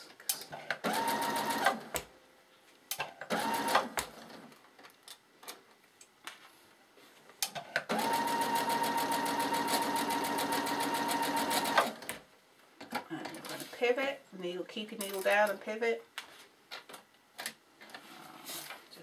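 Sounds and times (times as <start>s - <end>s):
sewing machine stitching: 0.8s - 1.8s, 3.3s - 4.0s, 7.9s - 12.1s.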